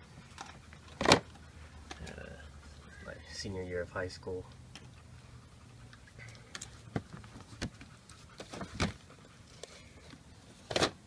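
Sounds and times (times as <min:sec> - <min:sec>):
books and papers rustling: 0:06.5 - 0:11.0.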